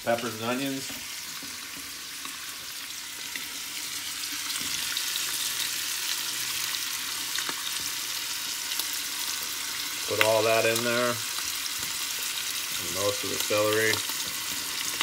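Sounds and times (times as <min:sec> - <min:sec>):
sausage sizzling in grease: 0:00.0 - 0:15.0.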